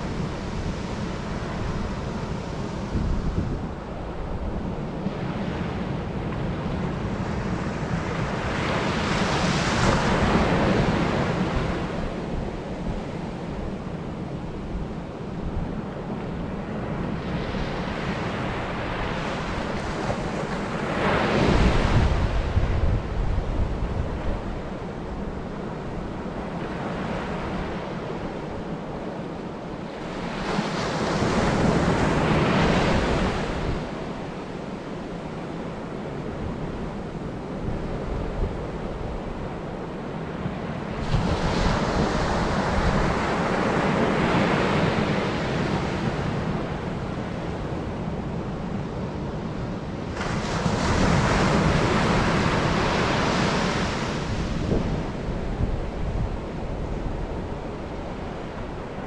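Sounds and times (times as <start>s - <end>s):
wind buffeting microphone: 0.0s - 26.8s, 30.0s - 59.0s
surf breaking on beach: 50.0s - 59.0s.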